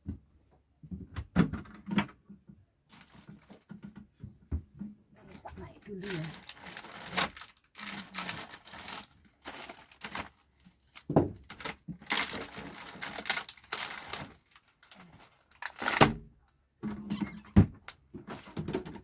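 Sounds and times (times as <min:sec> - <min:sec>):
plastic wrappers crinkling: 0:02.9 - 0:03.7, 0:05.3 - 0:16.2, 0:17.8 - 0:19.0.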